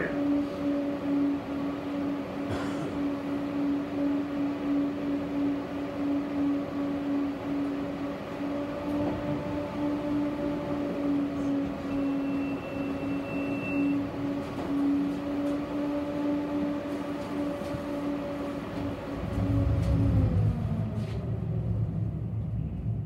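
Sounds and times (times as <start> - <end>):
tram electric hum: 0.0 - 23.0
heavy low rumble: 2.0 - 12.9, 17.0 - 23.0.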